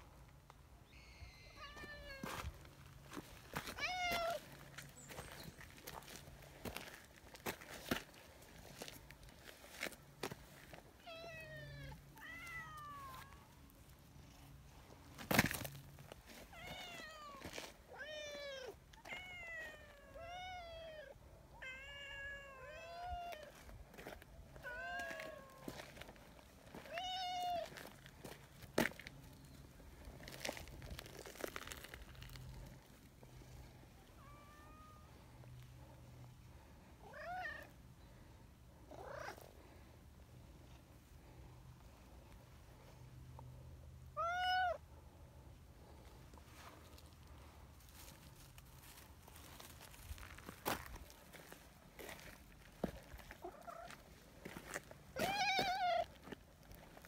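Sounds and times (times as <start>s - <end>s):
cat meowing: 11.1s - 13.4s.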